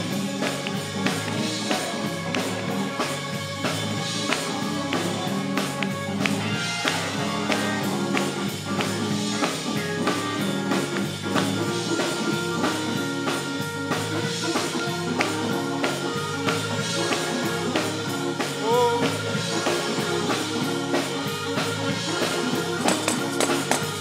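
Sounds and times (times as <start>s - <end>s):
guitar: 0.0s - 24.0s
keyboard: 0.0s - 24.0s
saxophone: 0.0s - 24.0s
tambourine struck in a steady beat: 22.8s - 24.0s.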